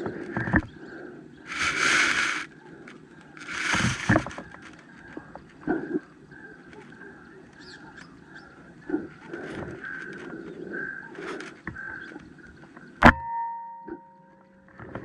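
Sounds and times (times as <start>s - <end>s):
steady tones: 1.5s - 2.5s.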